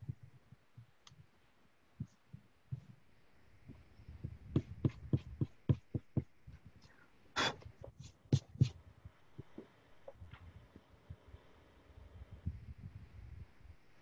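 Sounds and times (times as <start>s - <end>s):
eraser rubbing on paper: 7.8s - 8.8s.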